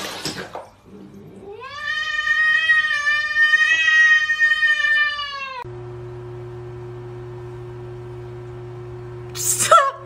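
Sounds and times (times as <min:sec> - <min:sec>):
cat yowling: 0:01.4 - 0:05.7.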